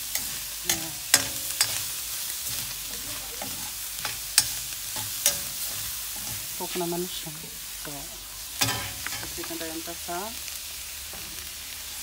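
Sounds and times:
metal spatula scraping pan: 0.0 - 6.6, 8.6 - 9.6
meat and onions sizzling: 0.0 - 12.0.

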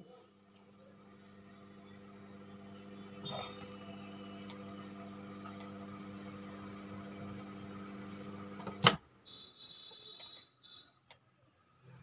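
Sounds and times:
microwave oven humming: 0.0 - 9.0.

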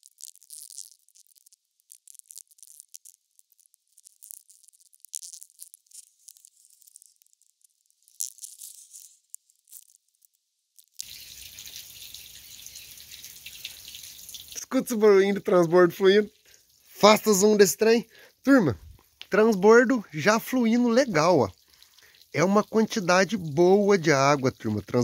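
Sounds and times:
water pouring and splashing: 11.0 - 25.0.

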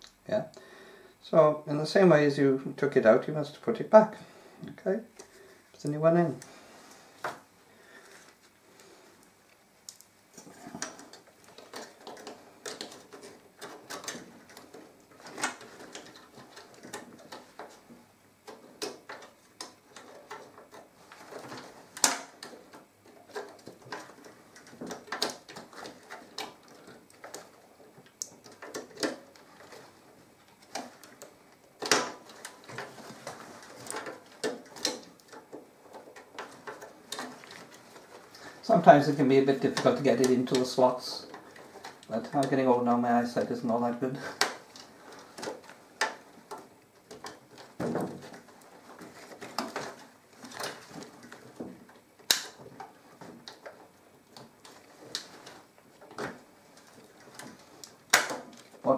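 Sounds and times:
rubbing and rustling: 4.0 - 58.9
plastic and metal clicks and knocks: 9.9 - 29.9, 30.5 - 38.4, 44.3 - 58.8.

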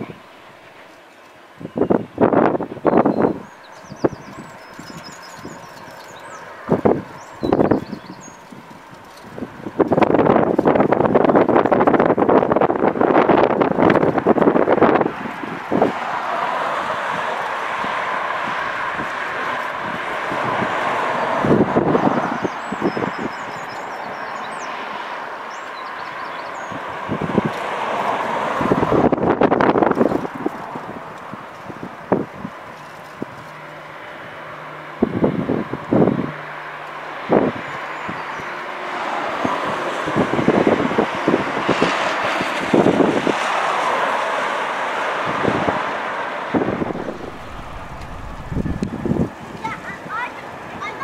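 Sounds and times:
wind buffeting microphone: 1.5 - 24.9, 25.5 - 33.6, 35.0 - 36.4, 37.2 - 38.6, 39.2 - 51.0
small birds chirping: 2.8 - 9.3, 21.9 - 26.9
steady rushing noise: 45.3 - 51.0
freight train rumbling past: 46.5 - 50.6.

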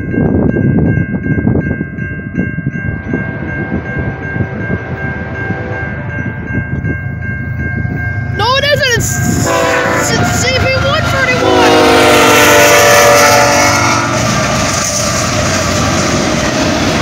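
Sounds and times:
train rumble and wheel clatter: 0.0 - 17.0
train horn blast: 3.2 - 6.3, 9.0 - 14.7.

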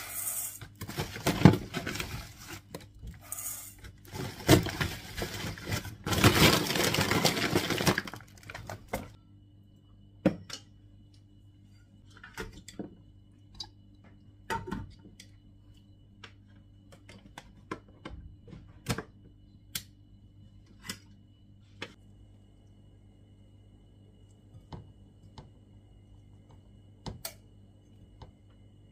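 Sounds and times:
plastic bag rustling: 0.8 - 2.7, 4.1 - 8.9.

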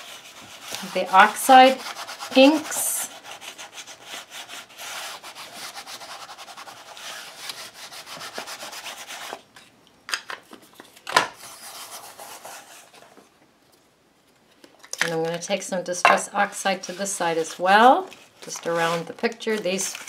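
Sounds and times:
ink pad rubbing on paper: 0.0 - 9.2.

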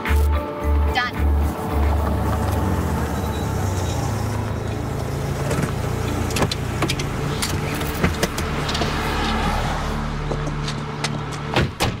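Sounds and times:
car engine running: 0.7 - 11.6
car doors clicking and knocking: 11.0 - 12.0.

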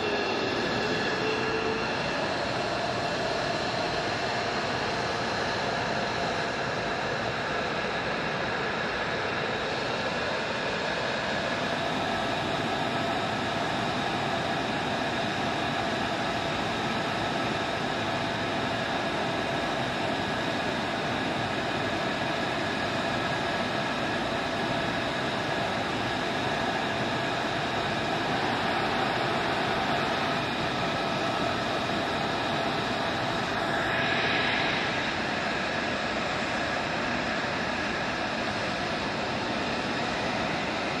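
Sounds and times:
jet aircraft rushing hiss: 27.8 - 41.0.

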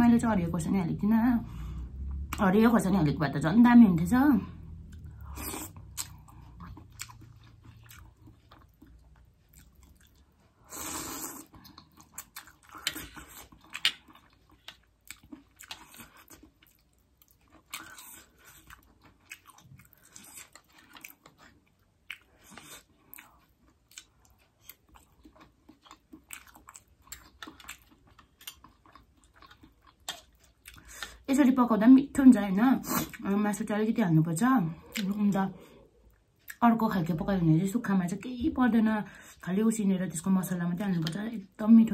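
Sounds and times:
wet chewing: 4.8 - 31.3.

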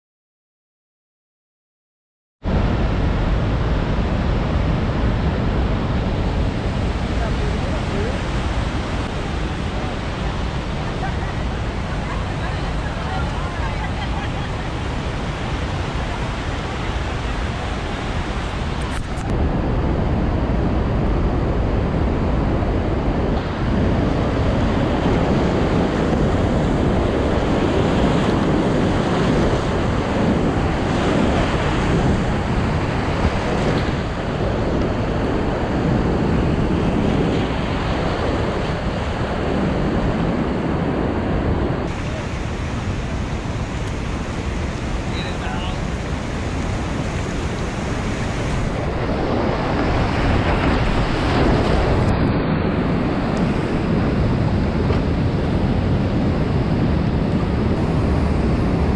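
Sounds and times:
wind buffeting microphone: 2.4 - 58.9
whitewater rapids rushing: 5.2 - 19.3, 41.8 - 52.2.

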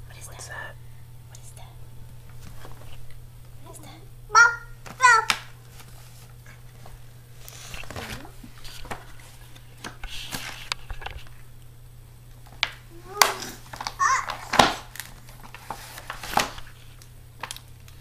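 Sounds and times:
low steady hum: 0.0 - 18.0
book knocks taps and rustles: 12.5 - 16.7
toddler soft vocal sounds: 12.9 - 14.3.

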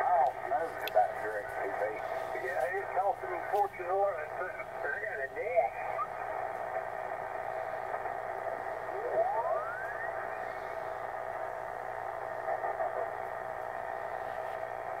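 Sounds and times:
radio static hiss: 0.0 - 15.0
radio whistling tone rising: 8.9 - 10.4.

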